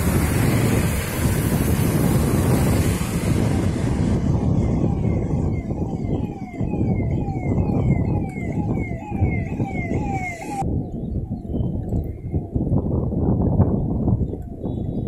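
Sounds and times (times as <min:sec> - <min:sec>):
wind buffeting microphone: 0:00.0 - 0:15.0
siren-like falling tone: 0:03.1 - 0:13.3.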